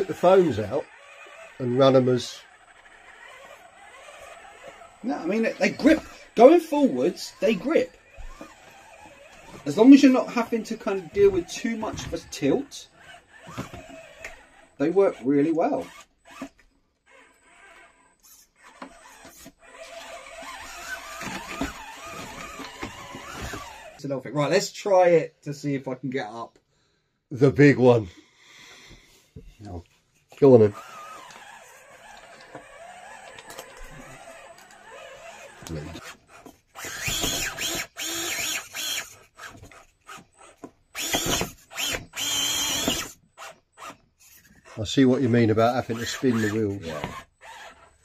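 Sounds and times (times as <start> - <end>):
small electric motor whining: 0.0 - 24.0, 30.5 - 48.0.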